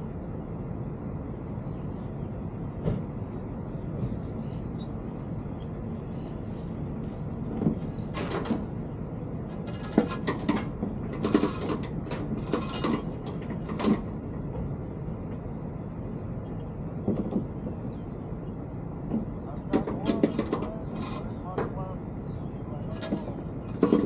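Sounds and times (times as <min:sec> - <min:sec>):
steady low rumble: 0:00.0 - 0:24.0
metallic clanks and rattles: 0:05.6 - 0:14.8, 0:16.3 - 0:18.0, 0:19.1 - 0:21.8, 0:22.8 - 0:24.0.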